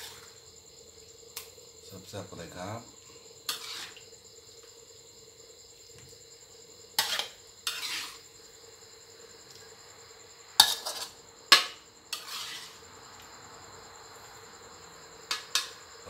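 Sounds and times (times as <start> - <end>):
spatula scraping a metal wok: 0.0 - 0.4, 3.4 - 4.1, 7.0 - 8.4, 10.6 - 12.9, 15.3 - 15.8.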